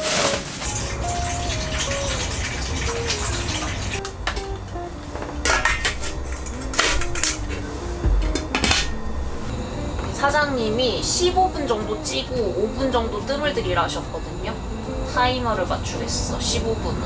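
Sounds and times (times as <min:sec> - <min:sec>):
simple background melody: 0:00.0 - 0:17.0
water pouring into metal pot: 0:00.4 - 0:04.0
metallic clanks of lid and pot: 0:05.4 - 0:07.4.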